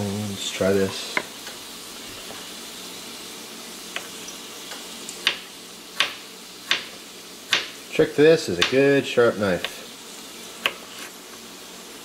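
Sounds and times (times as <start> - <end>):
vegetables sizzling in oil: 0.0 - 12.0
knife tapping cutting board: 3.9 - 4.1, 5.2 - 7.8, 8.6 - 8.8, 9.6 - 9.8, 10.6 - 10.8
knife slicing garlic: 6.0 - 7.8, 10.6 - 11.2.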